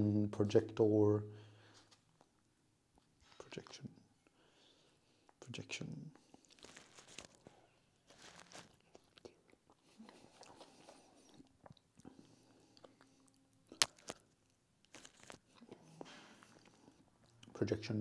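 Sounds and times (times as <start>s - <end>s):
person chewing: 6.2s - 17.5s.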